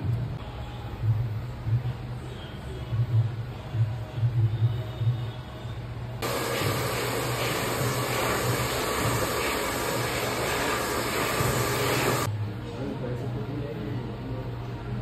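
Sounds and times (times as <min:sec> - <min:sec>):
hair dryer blowing: 0:06.2 - 0:12.3.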